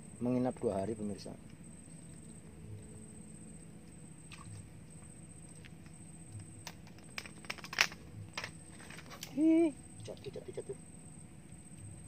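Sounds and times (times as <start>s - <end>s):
handling clicks and crackles: 5.6s - 9.4s.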